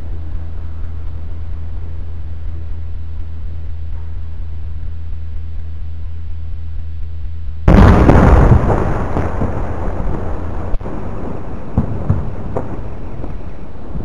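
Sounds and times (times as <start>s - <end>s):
explosion with long rumble: 7.6s - 14.0s.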